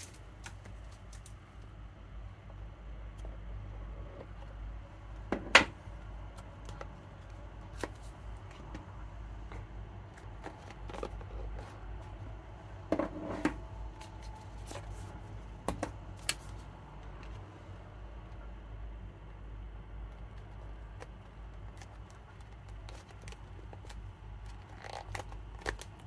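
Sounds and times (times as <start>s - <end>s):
packaging taps clicks and rustles: 20.2s - 26.0s.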